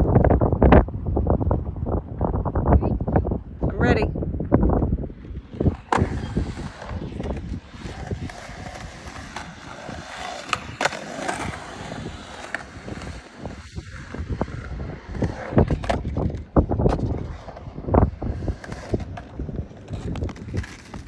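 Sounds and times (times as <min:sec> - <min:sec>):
skateboard wheels rolling on concrete: 0:00.0 - 0:21.0
skateboard knocking on concrete: 0:04.4 - 0:21.0.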